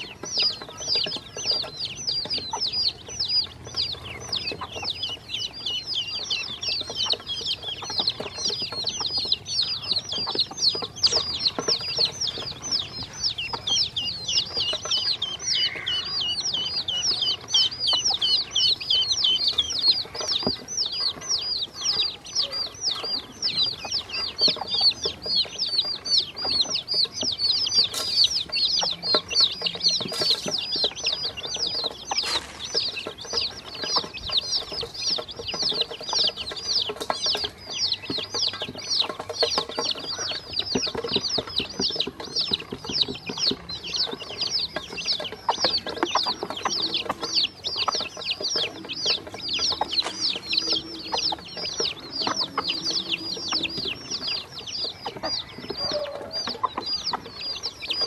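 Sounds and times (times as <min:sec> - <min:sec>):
baby chicks and ducklings peeping: 0:00.0 - 0:58.0.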